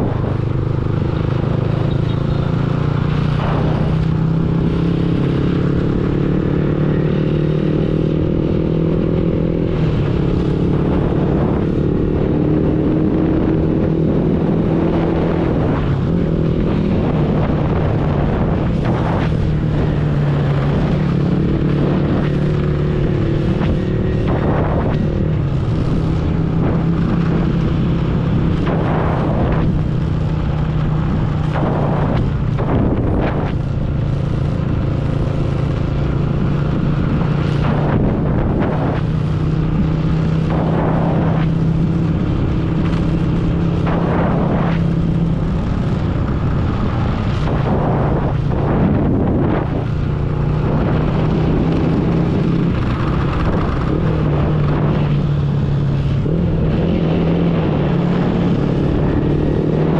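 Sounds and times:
wind buffeting microphone: 0:00.0 - 0:01.8, 0:03.2 - 0:59.9
motorbike engine humming: 0:00.0 - 0:59.9.

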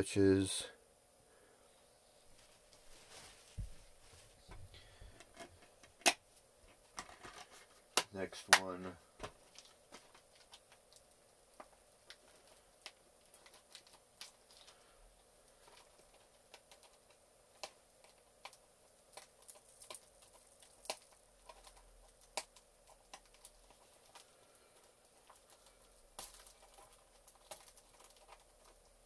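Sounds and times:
small objects clicking and tapping: 0:15.5 - 0:29.0.

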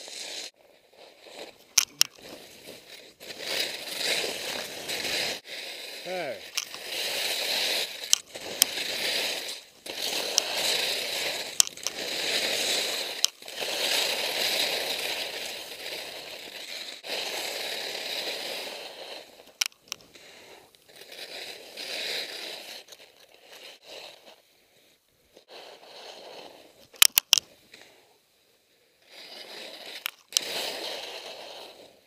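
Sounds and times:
skis scraping over snow: 0:00.0 - 0:28.1, 0:29.0 - 0:32.0
sharp clicks: 0:01.7 - 0:02.3, 0:06.4 - 0:06.9, 0:08.0 - 0:10.6, 0:11.5 - 0:12.0, 0:26.8 - 0:27.4.

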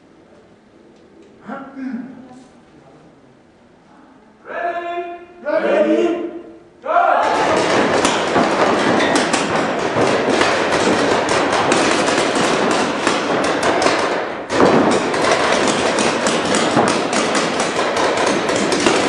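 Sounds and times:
balls thudding on bunkers: 0:07.2 - 0:19.0.

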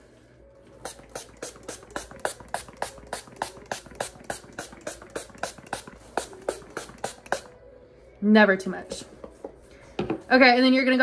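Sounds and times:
spray bottle spraying: 0:00.8 - 0:07.5.

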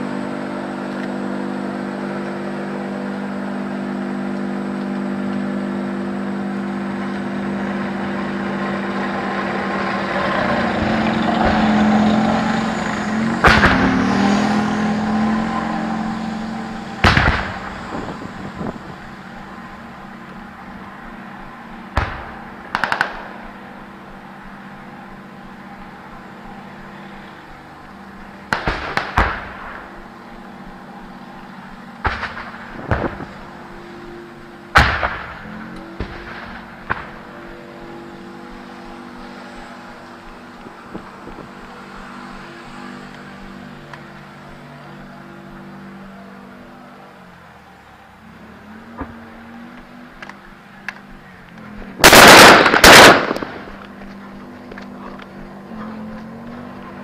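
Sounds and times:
armoured vehicle engine running: 0:00.0 - 0:57.0
gunshots: 0:13.4 - 0:14.3, 0:17.0 - 0:17.8, 0:22.0 - 0:23.3, 0:28.5 - 0:29.9, 0:32.0 - 0:33.3, 0:34.8 - 0:37.4, 0:52.0 - 0:53.9.

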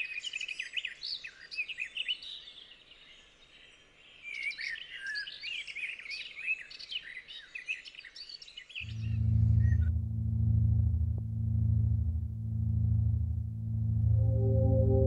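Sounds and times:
ambient music drone: 0:08.8 - 0:15.0.

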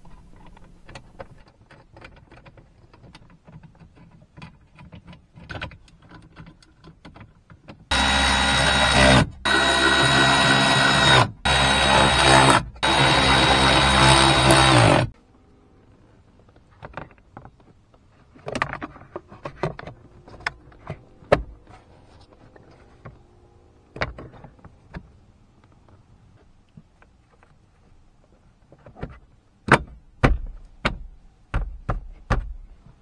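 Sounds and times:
cordless electric ratchet running: 0:07.9 - 0:15.1.

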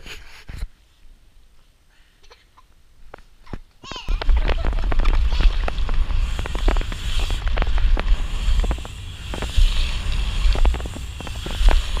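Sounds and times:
bike clicks and rattles: 0:03.4 - 0:12.0.

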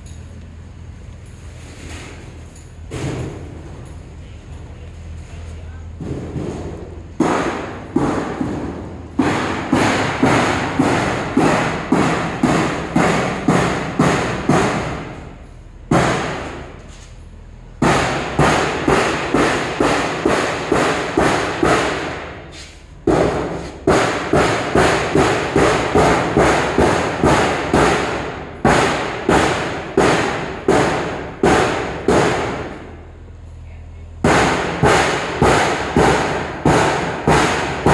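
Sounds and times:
hammer beating sheet metal: 0:06.0 - 0:16.8, 0:17.8 - 0:33.0, 0:34.2 - 0:37.9.

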